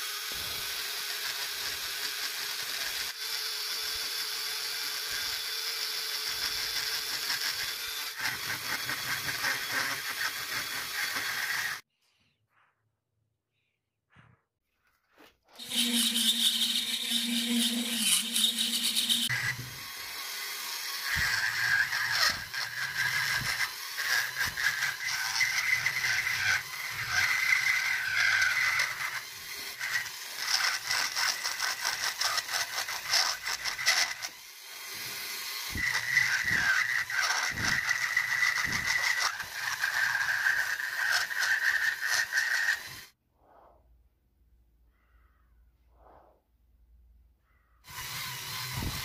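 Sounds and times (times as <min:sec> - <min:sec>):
rotary tool whining: 0:00.0 - 0:11.9, 0:15.1 - 0:43.2, 0:47.8 - 0:49.0
bit grinding against wood: 0:05.1 - 0:11.8, 0:15.1 - 0:43.2.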